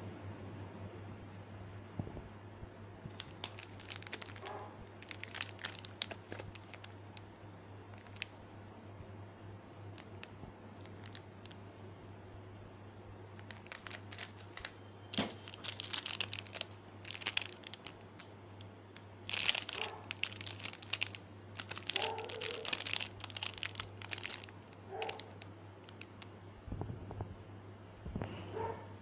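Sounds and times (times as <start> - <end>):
steady low hum: 0.0 - 29.0
plastic wrappers crinkling: 3.1 - 8.4, 9.9 - 11.6, 13.4 - 26.3.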